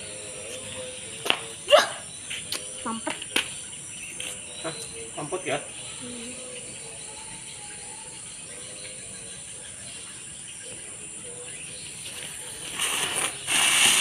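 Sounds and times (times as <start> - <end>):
night insects chirring: 0.0 - 14.0
firework hissing: 12.6 - 14.0.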